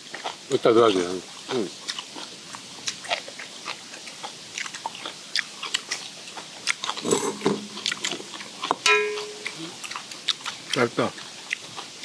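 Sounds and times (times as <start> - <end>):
chewing and crunching food: 0.0 - 12.0.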